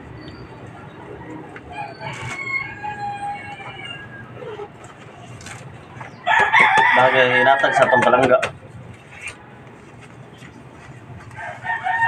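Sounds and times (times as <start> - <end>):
rooster crowing: 1.2 - 4.7, 6.2 - 8.3, 11.3 - 12.0.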